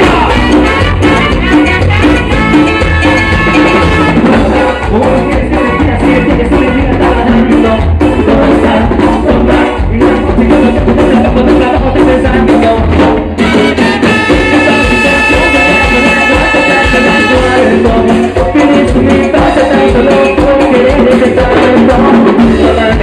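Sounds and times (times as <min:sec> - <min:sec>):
drum beat: 0:00.0 - 0:23.0
latin dance band playing: 0:00.0 - 0:23.0
person singing: 0:00.0 - 0:23.0.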